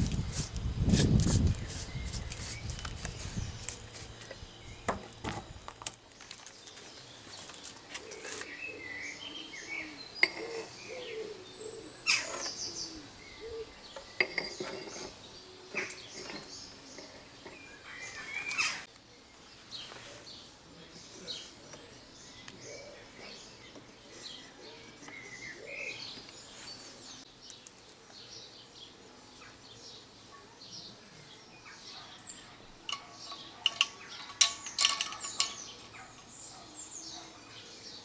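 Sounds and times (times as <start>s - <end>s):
small birds chirping: 0.0s - 38.0s
sharp clicks and knocks: 32.8s - 35.9s.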